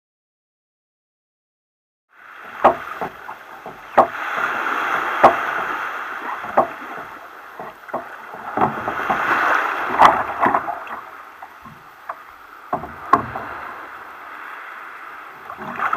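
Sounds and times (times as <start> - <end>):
water sloshing along kayak hull: 2.2 - 15.9
sharp knocks on hull: 2.4 - 13.9.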